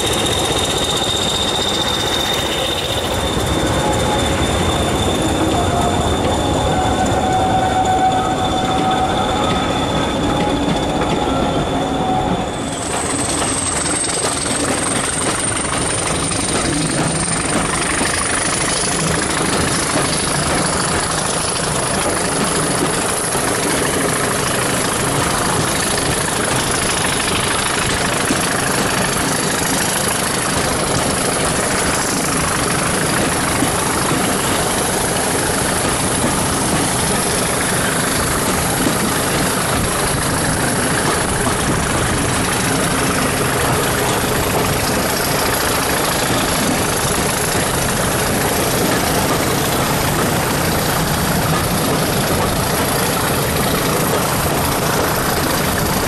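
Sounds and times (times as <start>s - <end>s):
thin high whine: 0.0s - 14.6s
moving train rumble: 0.0s - 56.0s
train wheels squealing: 0.0s - 56.0s.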